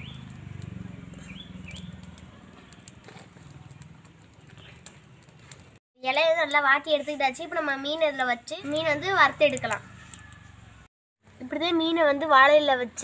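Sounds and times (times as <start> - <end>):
bird chirping: 0.0 - 0.4, 1.1 - 2.2
fire crackling: 0.0 - 13.0.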